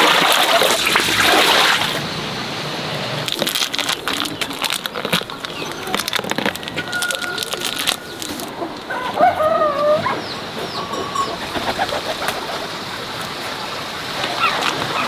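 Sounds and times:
clicking handling noises: 0:03.3 - 0:08.9
bird calls: 0:04.0 - 0:12.8, 0:14.3 - 0:15.0
rooster crowing: 0:08.9 - 0:11.4.

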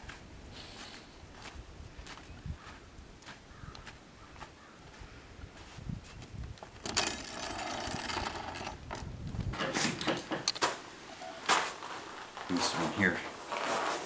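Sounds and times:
footsteps in snow: 0:00.0 - 0:06.5, 0:11.2 - 0:14.0
sharp knocks and clatters: 0:06.8 - 0:10.8
wooden barn door scraping: 0:06.8 - 0:11.8.

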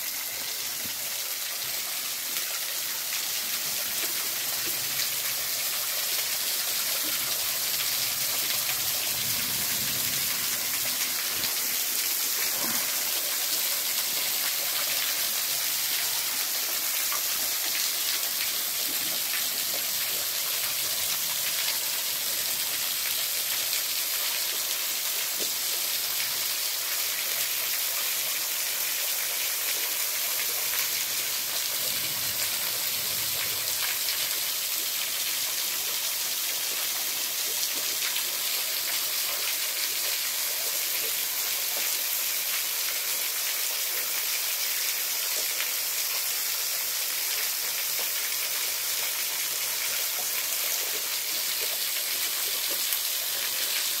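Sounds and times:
waterfall splashing into pool: 0:00.0 - 0:54.0.

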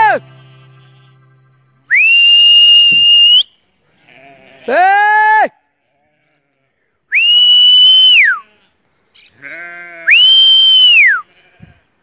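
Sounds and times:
sheep bleat: 0:00.0 - 0:01.5, 0:03.8 - 0:04.9, 0:05.7 - 0:06.9, 0:08.2 - 0:10.2, 0:11.1 - 0:11.9
person whistling: 0:01.9 - 0:03.6.

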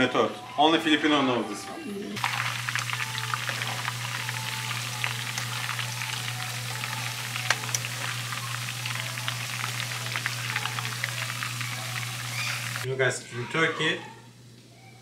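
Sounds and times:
low hum: 0:02.2 - 0:12.8
meat deep-frying in oil: 0:02.2 - 0:12.9
oil popping: 0:02.2 - 0:12.9.

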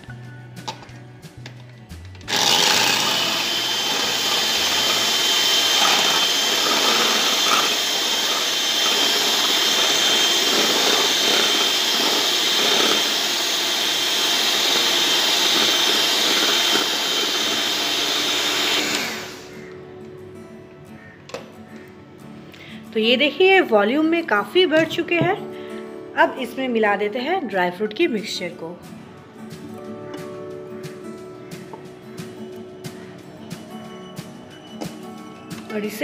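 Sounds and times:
electric hand mixer whining: 0:02.3 - 0:19.8.

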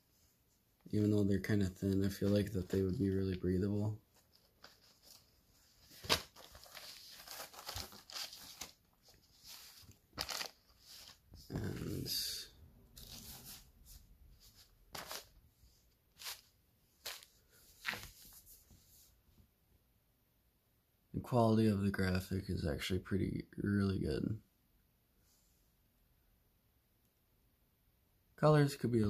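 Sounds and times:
fabric rustling: 0:04.0 - 0:12.1, 0:13.0 - 0:19.2
plastic packaging crinkling: 0:04.2 - 0:11.2.

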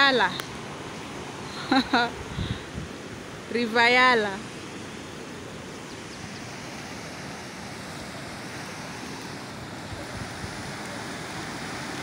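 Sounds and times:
river water rushing over rocks: 0:02.9 - 0:12.0.

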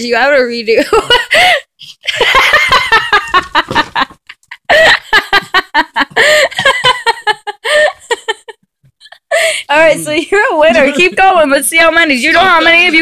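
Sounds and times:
people laughing and giggling: 0:00.9 - 0:09.3, 0:10.6 - 0:11.4.

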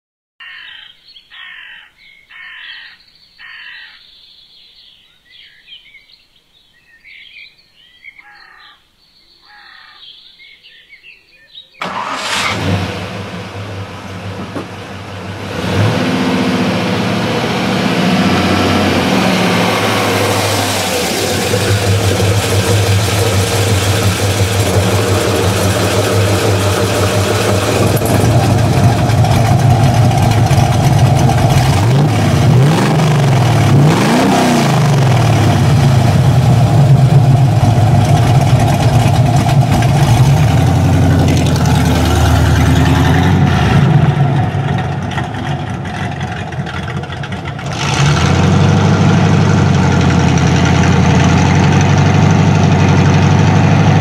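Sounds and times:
birds singing: 0:00.4 - 0:11.9
car engine starting and idling: 0:11.8 - 0:54.0.

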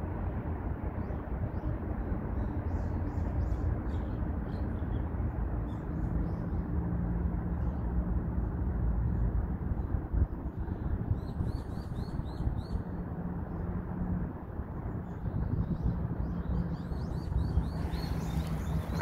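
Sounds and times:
distant bird chirps: 0:16.2 - 0:19.0.

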